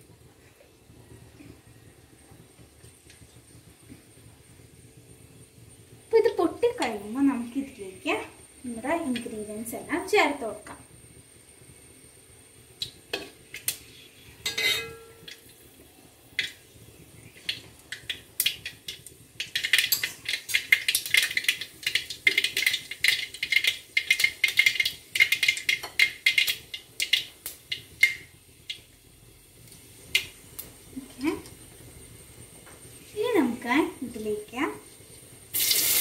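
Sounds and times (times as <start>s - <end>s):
mustard seeds popping in oil: 8.6s - 10.9s, 12.7s - 36.0s
metal spoon clinking on pot: 14.4s - 15.4s.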